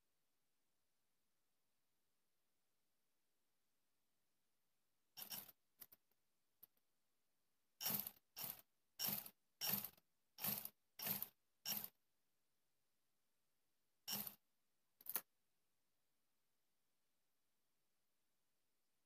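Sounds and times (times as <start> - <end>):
scissors cutting fabric: 5.2 - 5.6, 7.8 - 12.0, 14.1 - 14.4.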